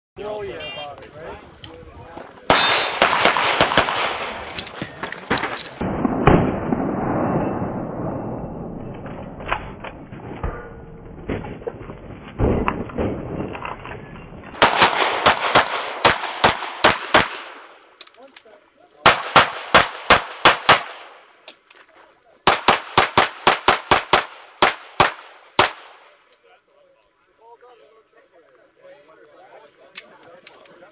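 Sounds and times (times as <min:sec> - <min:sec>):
pistol shots in rapid strings: 0:02.5 - 0:04.4, 0:14.6 - 0:17.6.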